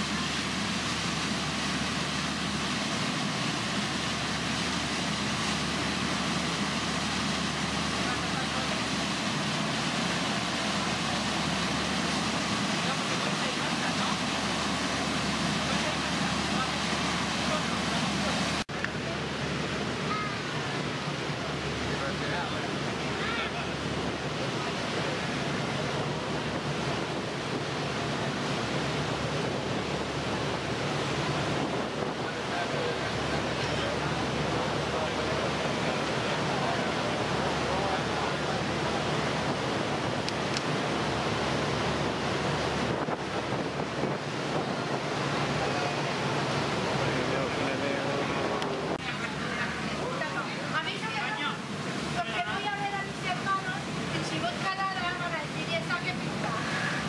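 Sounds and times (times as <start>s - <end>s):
boat engine humming: 0.0s - 57.0s
wind and water rushing: 0.0s - 57.0s
wind buffeting microphone: 23.7s - 50.1s.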